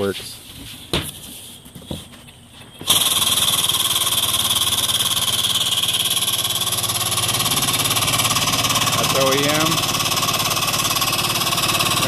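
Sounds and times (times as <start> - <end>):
hydraulic pump pulsing: 2.8 - 12.0.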